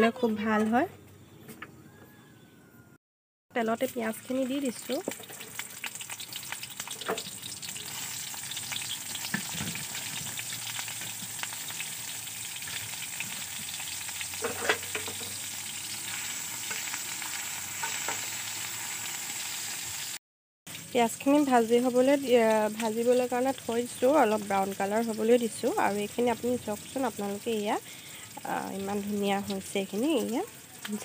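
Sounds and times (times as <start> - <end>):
onions sizzling in oil: 3.6 - 31.0
spatula scraping pan: 14.3 - 18.4.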